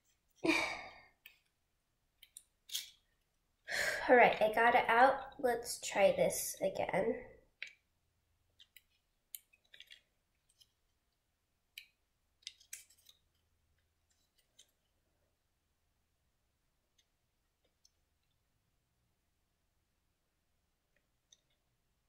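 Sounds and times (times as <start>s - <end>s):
wooden pieces clicking together: 2.2s - 3.2s, 8.5s - 10.8s, 11.7s - 13.4s.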